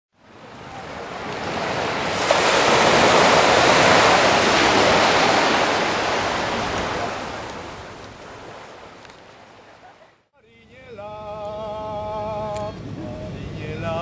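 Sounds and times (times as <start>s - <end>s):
surf washing onto beach: 0.2s - 10.0s.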